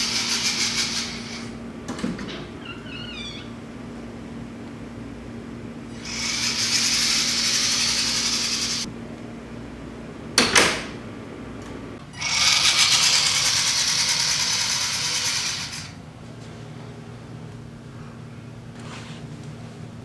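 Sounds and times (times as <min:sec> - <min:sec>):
toy car motor whirring: 0:00.0 - 0:01.5, 0:05.9 - 0:08.9, 0:12.2 - 0:16.0.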